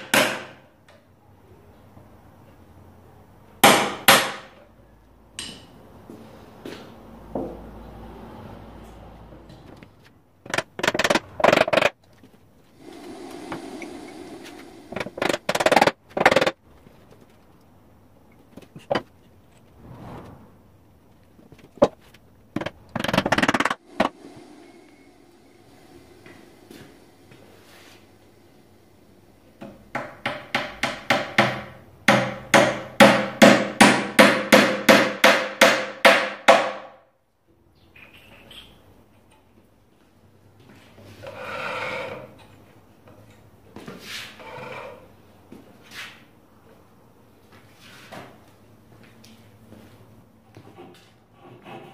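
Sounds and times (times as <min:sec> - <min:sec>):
hammer tapping wooden wedge: 0:29.6 - 0:36.9.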